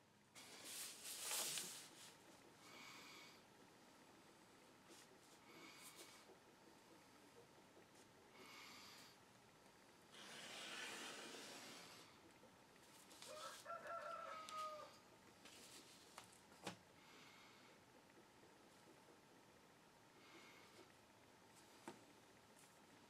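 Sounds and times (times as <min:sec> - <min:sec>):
paper rustling: 0:00.4 - 0:02.2.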